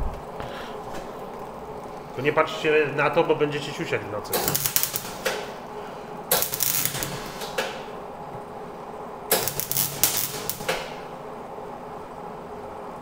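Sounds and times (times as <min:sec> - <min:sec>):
welder arc crackling: 0:00.9 - 0:11.2.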